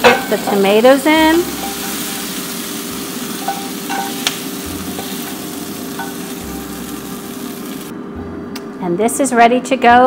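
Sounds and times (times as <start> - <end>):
oil and tomatoes sizzling: 0.0 - 7.9.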